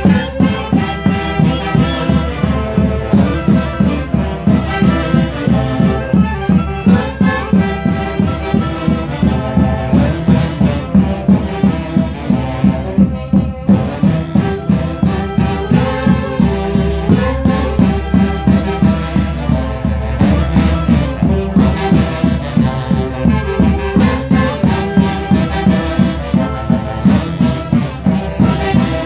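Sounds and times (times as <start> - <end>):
folk orchestra dance tune: 0.0 - 29.0
wind instruments melody: 0.0 - 29.0.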